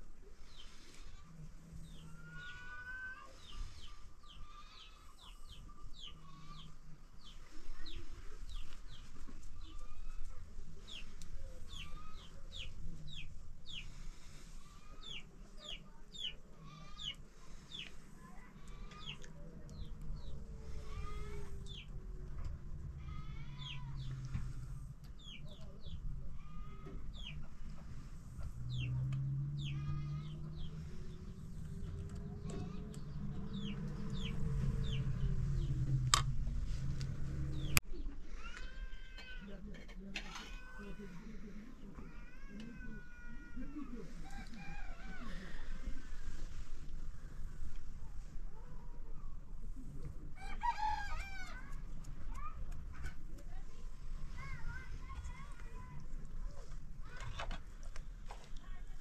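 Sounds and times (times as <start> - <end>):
chickens clucking and chirping: 0.2 - 18.0, 18.7 - 22.0, 25.1 - 29.0, 29.6 - 36.0.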